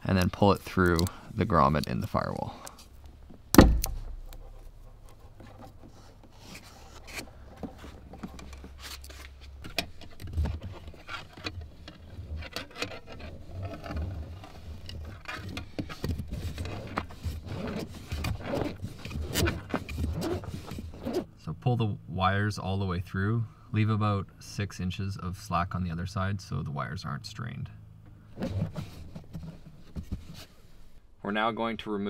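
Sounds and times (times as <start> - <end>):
wire rubbing through rubber grommet: 3.9 - 21.3, 28.3 - 31.0.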